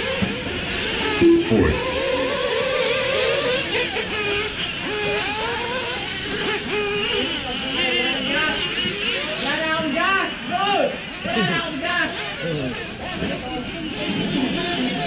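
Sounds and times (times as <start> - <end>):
small engines revving: 0.0 - 15.0
short steady tone: 1.2 - 1.8.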